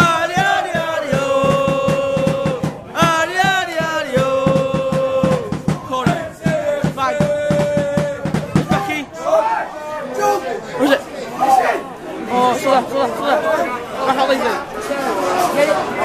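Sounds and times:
steady beat: 0.0 - 9.5
close loud voice singing: 0.0 - 10.4
football supporters chanting: 0.0 - 16.0.

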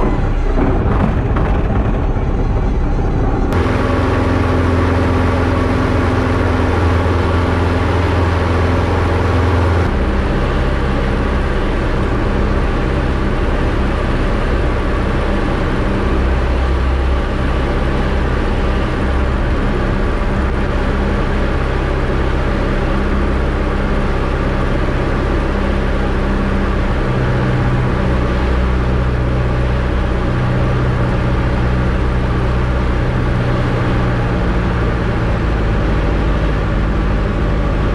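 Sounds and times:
aircraft engine and propeller droning: 0.0 - 37.9.

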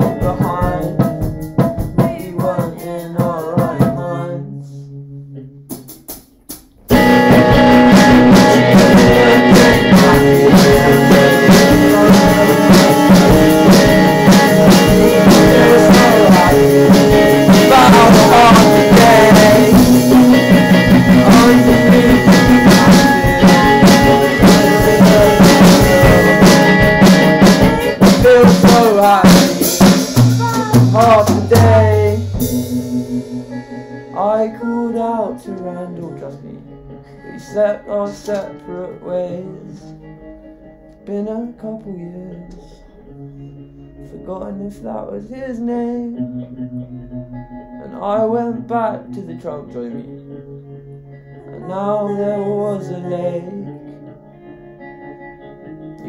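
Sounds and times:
drum kit: 0.0 - 4.2, 5.6 - 34.6
acoustic guitar: 0.0 - 56.0.

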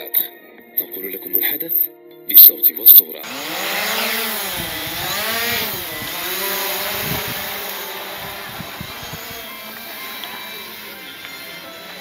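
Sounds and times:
drone propellers buzzing: 3.2 - 12.0.

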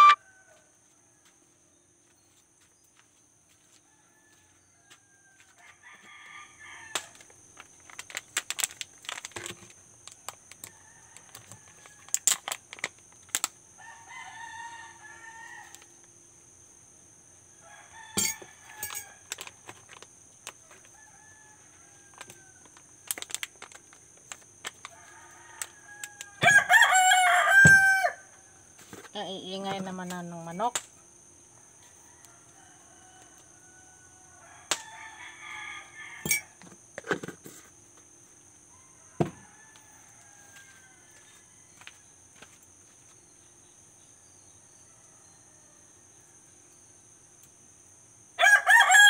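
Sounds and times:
faint high-pitched tone: 0.0 - 0.3
roosters crowing: 0.0 - 0.8, 3.8 - 7.5, 13.7 - 16.0, 17.5 - 19.6, 20.6 - 23.0, 24.8 - 28.8, 31.6 - 36.6, 38.5 - 42.1, 48.2 - 49.0.

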